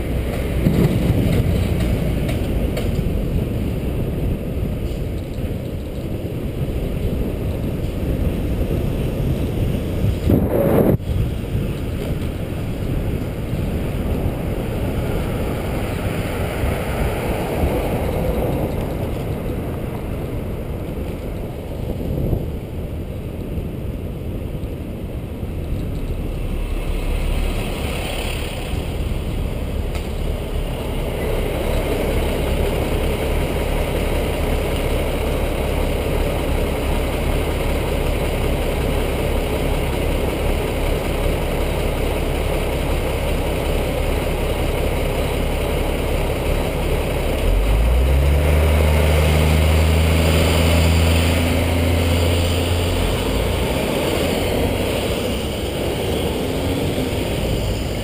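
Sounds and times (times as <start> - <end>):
car and truck engines rumbling: 0.0 - 58.0.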